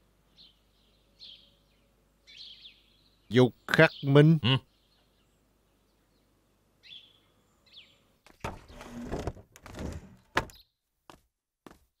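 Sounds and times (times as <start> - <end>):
bird chirps: 0.3 - 8.5
rustling and scraping: 8.3 - 10.5.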